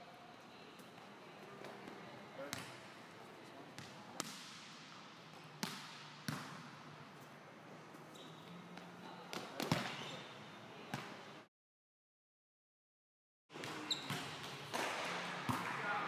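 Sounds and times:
volleyball hits in echoing gym: 0:00.6 - 0:11.5, 0:13.5 - 0:16.0.

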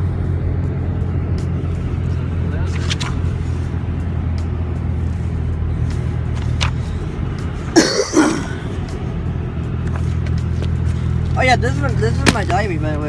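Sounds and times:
car engine drone in cabin: 0:00.0 - 0:13.0
road noise: 0:00.0 - 0:13.0
person coughing: 0:07.8 - 0:08.7.

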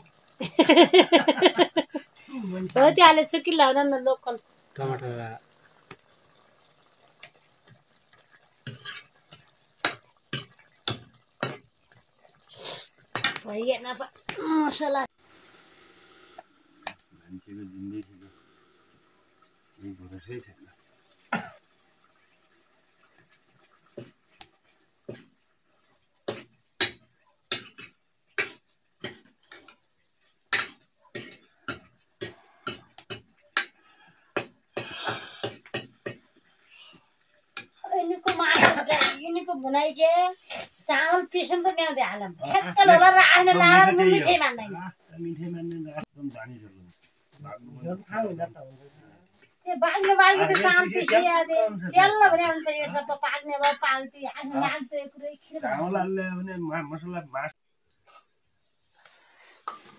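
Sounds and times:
faint sizzle from pan: 0:00.0 - 0:59.9
ladle scraping pan: 0:08.6 - 0:11.7.

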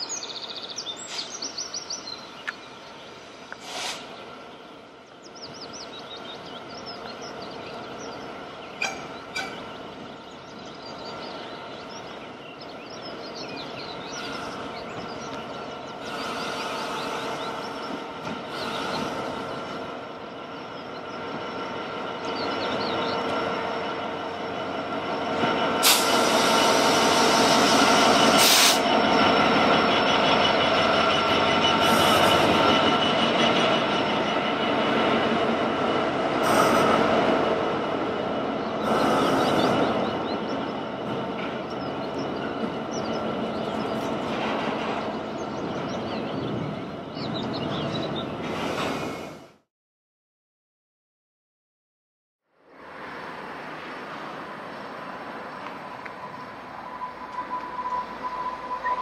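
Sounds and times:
birds chirping: 0:00.0 - 0:25.8, 0:27.6 - 0:48.6
diesel locomotive engine: 0:00.0 - 0:49.7, 0:52.5 - 0:59.0
short sharp hisses: 0:03.6 - 0:04.2, 0:28.4 - 0:28.8
train wheels squealing: 0:05.3 - 0:35.5, 0:36.3 - 0:37.2, 0:38.6 - 0:49.5, 0:55.5 - 0:59.0.

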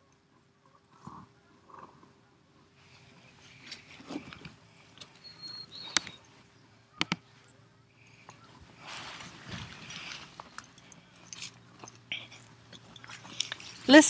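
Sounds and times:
horse chewing: 0:09.3 - 0:14.0.

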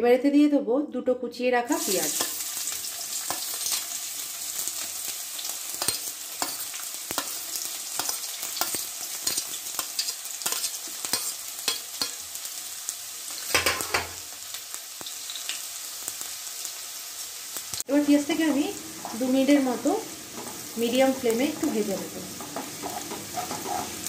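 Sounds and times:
onions sizzling in oil: 0:01.7 - 0:24.0
spoon scraping a pan: 0:02.0 - 0:03.9, 0:05.7 - 0:12.2, 0:20.2 - 0:24.0.

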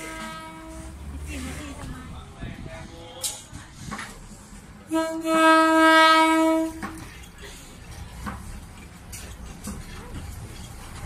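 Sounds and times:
railcar horn: 0:00.0 - 0:01.6, 0:04.9 - 0:06.9.

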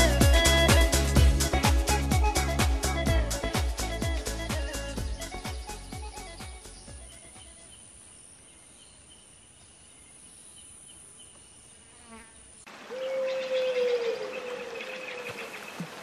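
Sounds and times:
faint high-pitched insect chirring: 0:06.1 - 0:12.7.

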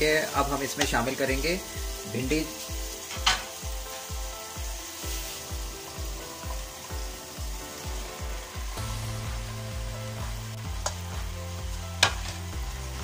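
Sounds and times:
faint sizzle of frying: 0:00.0 - 0:13.0
music with steady bass beat: 0:03.6 - 0:13.0.

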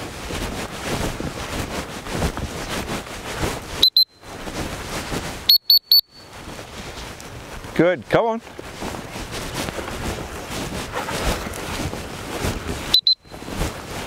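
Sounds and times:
footsteps through grass: 0:00.0 - 0:05.6, 0:06.2 - 0:14.0
dog whistle toots: 0:12.9 - 0:13.3.

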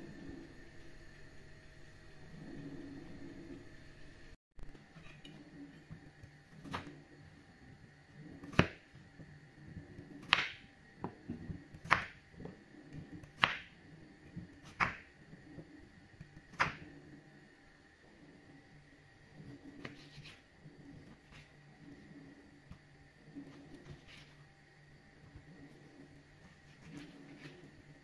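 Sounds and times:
knife cutting potatoes on wooden board: 0:10.0 - 0:13.7, 0:14.4 - 0:15.1, 0:16.2 - 0:16.9, 0:19.8 - 0:20.4.

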